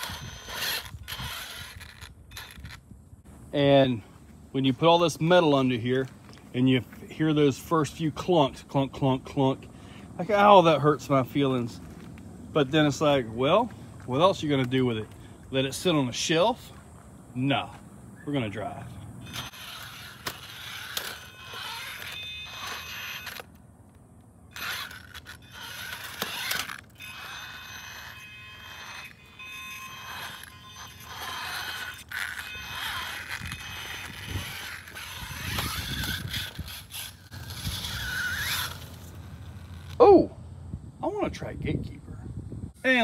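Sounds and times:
electric motor whining: 0:00.0 - 0:03.0, 0:19.2 - 0:23.6, 0:24.5 - 0:40.0.

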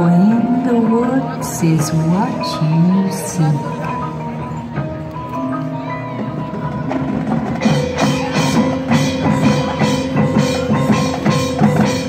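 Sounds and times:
marching band playing: 0:02.0 - 0:12.0
sharp percussion hits: 0:03.6 - 0:12.0.

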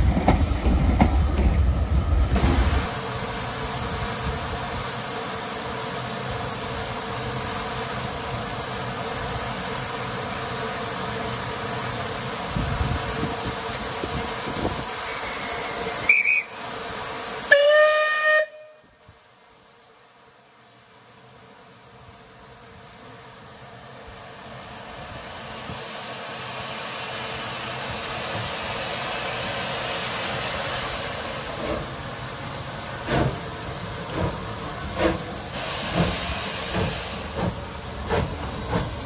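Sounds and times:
steam hissing: 0:00.0 - 0:19.4, 0:20.7 - 0:39.0
short high whistle: 0:15.0 - 0:16.6, 0:17.5 - 0:18.9
steam whistle chord: 0:17.5 - 0:19.0.

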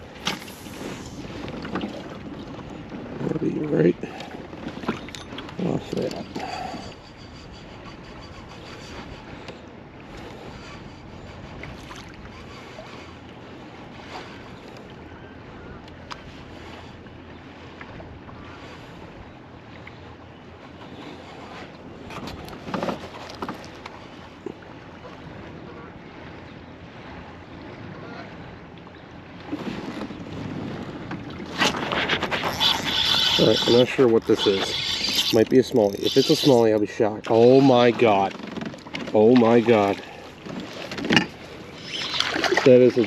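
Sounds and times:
small waves lapping against kayak: 0:00.0 - 0:43.0
wind: 0:00.0 - 0:43.0
rustling and clicking of rod: 0:21.3 - 0:24.1, 0:40.4 - 0:42.7
spinning reel cranking: 0:32.5 - 0:36.6.

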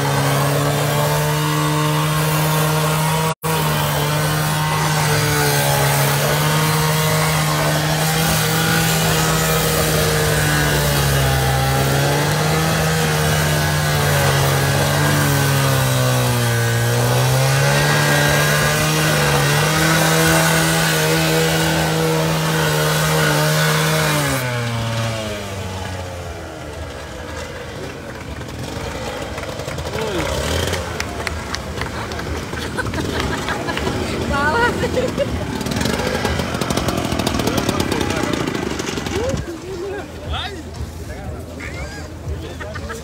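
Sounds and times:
disc grinding through steel: 0:00.0 - 0:25.0
cut-off saw engine: 0:00.0 - 0:40.4.

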